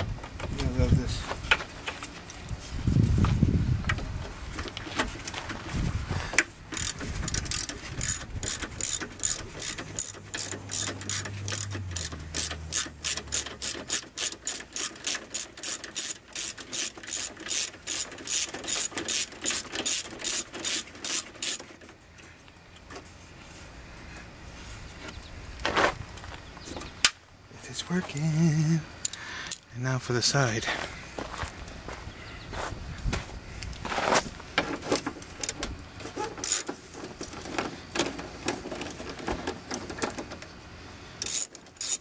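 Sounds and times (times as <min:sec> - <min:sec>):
socket ratchet clicking: 0:06.7 - 0:21.6, 0:41.2 - 0:42.0.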